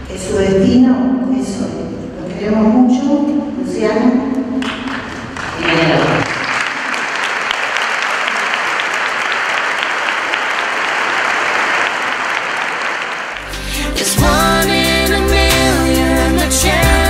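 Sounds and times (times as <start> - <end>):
audience applauding: 4.6 - 13.6
music: 13.4 - 17.0.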